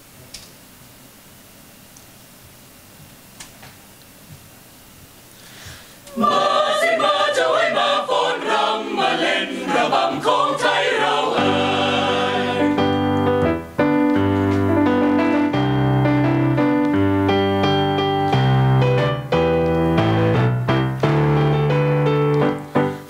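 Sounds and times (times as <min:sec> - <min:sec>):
mixed choir singing in harmony: 0:06.1 - 0:13.4
digital keyboard playing chords: 0:11.1 - 0:23.0.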